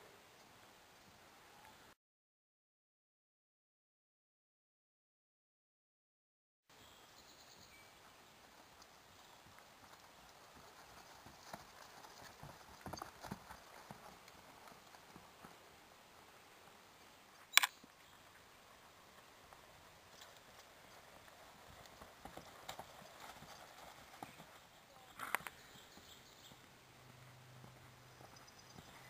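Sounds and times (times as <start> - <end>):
horse hoofbeats on grass: 8.4 - 15.8, 18.6 - 29.0.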